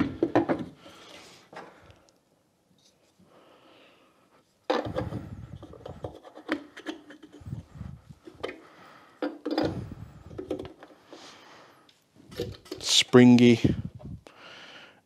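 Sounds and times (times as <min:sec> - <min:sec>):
plastic spool rubbing and scraping: 0:04.7 - 0:08.4.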